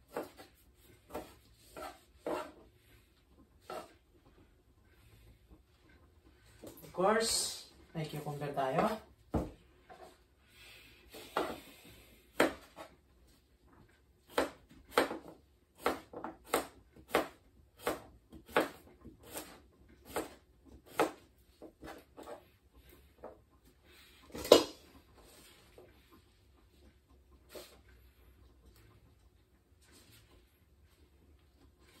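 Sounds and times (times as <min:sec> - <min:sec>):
knife slicing cucumber: 0:00.0 - 0:02.6, 0:14.2 - 0:22.4.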